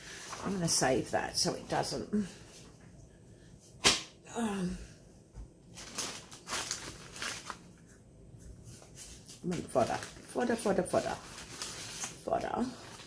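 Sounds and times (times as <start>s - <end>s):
paper rustling: 5.8s - 8.0s, 8.6s - 13.0s.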